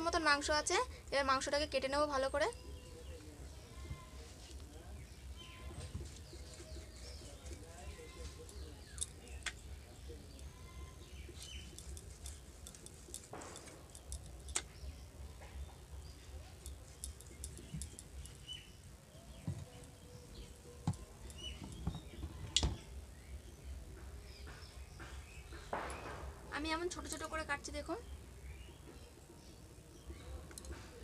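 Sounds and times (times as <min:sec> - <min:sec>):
faint bird chirps: 0:02.2 - 0:26.2.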